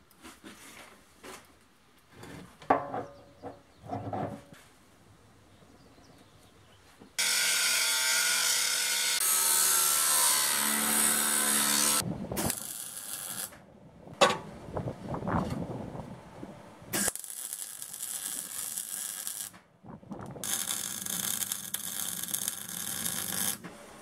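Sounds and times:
angle grinder cutting steel: 7.2 - 13.5, 20.4 - 23.6.

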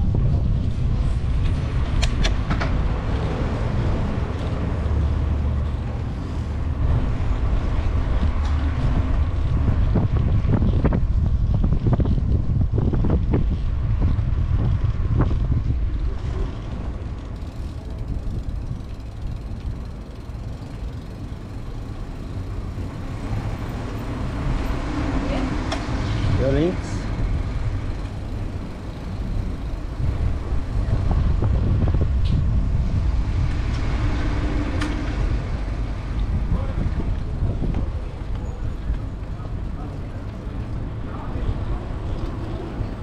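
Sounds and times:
bicycle tyres rolling on pavement: 0.0 - 43.0
wind rumbling on microphone: 0.0 - 43.0
bicycle knocks and clicks: 1.4 - 3.1.

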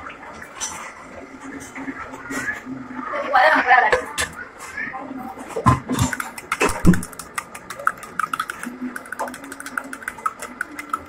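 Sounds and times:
spoon stirring in steel cup: 6.0 - 11.0.

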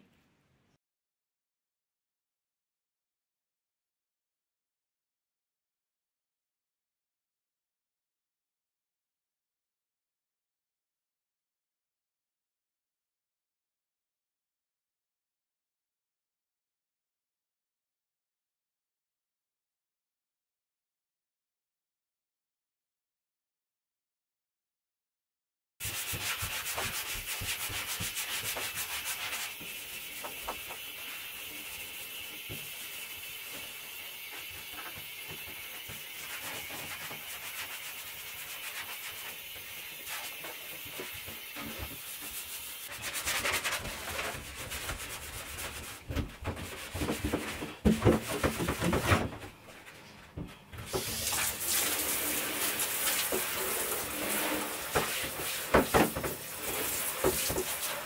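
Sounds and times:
scouring pad scrubbing bathtub: 25.8 - 49.4, 50.8 - 58.0.

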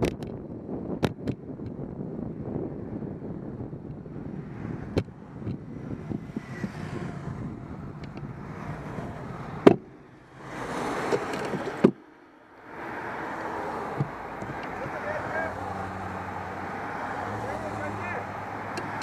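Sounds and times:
wind on microphone: 0.0 - 12.0
road rumble: 0.0 - 19.0
sharp knocks: 11.1 - 12.1.

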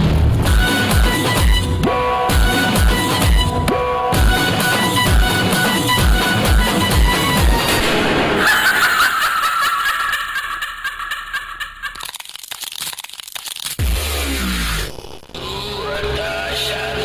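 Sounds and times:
high wavering cackling laugh: 8.4 - 12.2
crackling clicks: 11.9 - 13.8.

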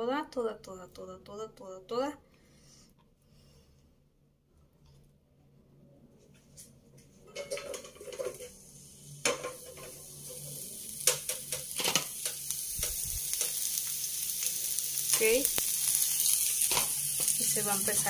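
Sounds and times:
onion sizzling in hot oil: 7.4 - 18.0.

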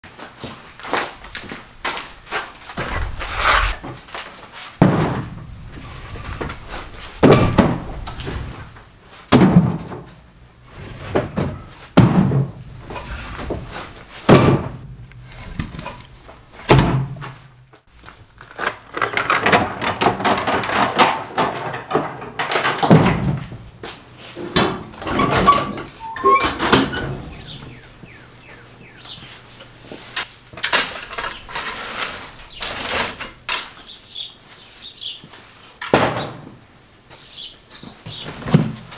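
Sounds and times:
firewood thunking into plastic cart: 4.8 - 5.4, 9.3 - 10.2, 11.1 - 12.6, 14.3 - 14.9, 19.0 - 23.5, 38.1 - 38.9
cart rolling on concrete: 12.6 - 14.3, 15.0 - 17.4, 29.8 - 33.9.

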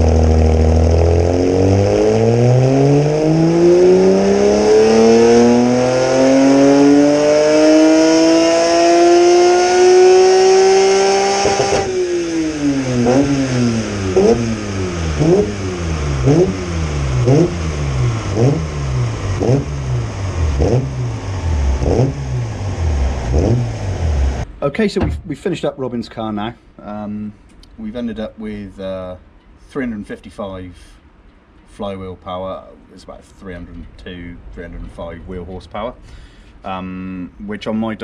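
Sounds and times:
sharp throttle blips: 0.0 - 24.4
car engine revving: 0.0 - 24.5.

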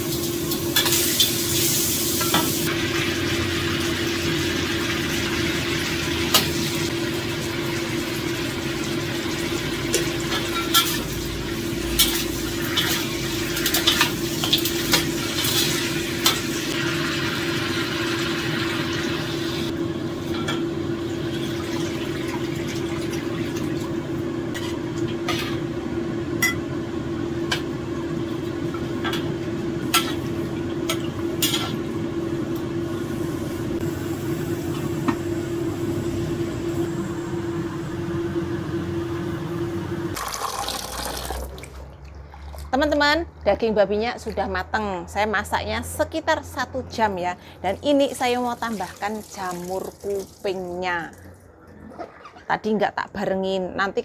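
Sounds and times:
food sizzling in a pan: 0.0 - 19.7.

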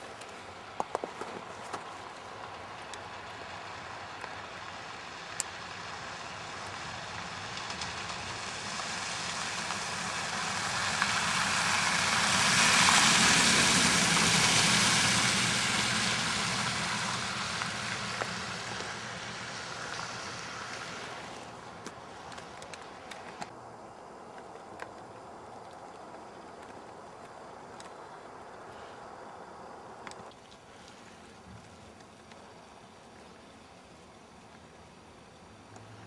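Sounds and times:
pickup truck driving past: 2.6 - 21.9.

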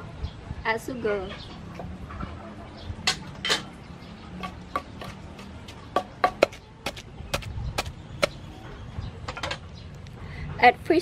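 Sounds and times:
wooden pestle pounding in mortar: 4.4 - 8.5.

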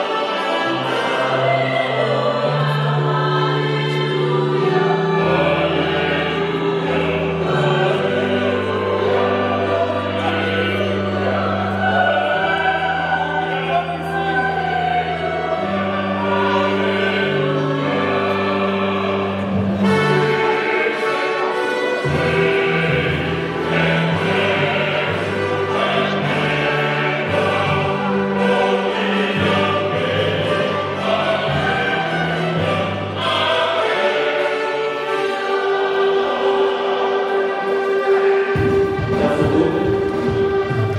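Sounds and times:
choir singing: 0.0 - 40.9
instrumental accompaniment: 0.0 - 40.9.

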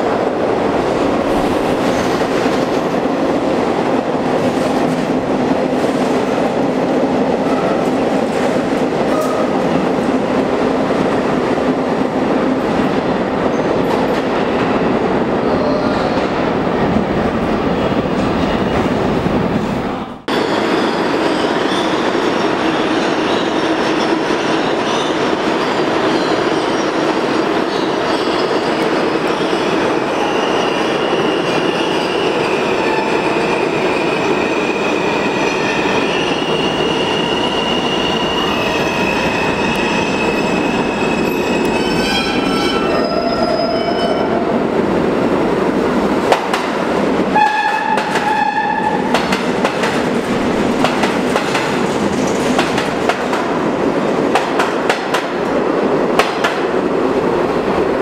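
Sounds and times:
train rumble and wheel clatter: 0.0 - 58.0
high wheel squeal: 33.5 - 44.4
train horn blasts: 47.4 - 49.0.

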